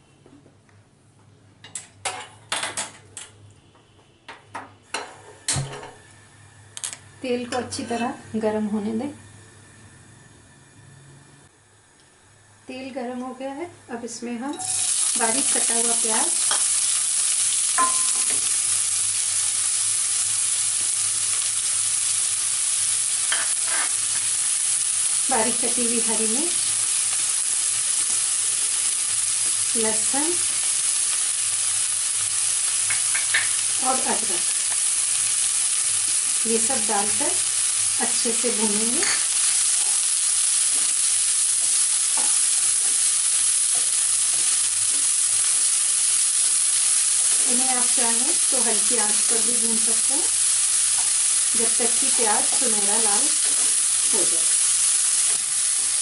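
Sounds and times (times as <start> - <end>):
onion sizzling in hot oil: 12.6 - 56.0.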